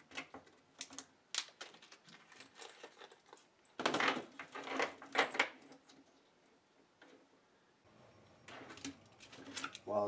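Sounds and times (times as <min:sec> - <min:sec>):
small metal parts clinking: 0:00.9 - 0:06.6.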